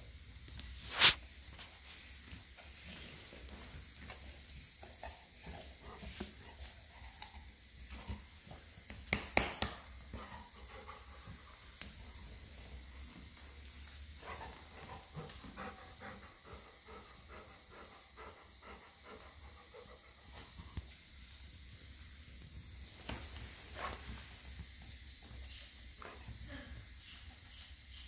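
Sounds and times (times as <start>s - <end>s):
dog panting: 14.2s - 20.6s.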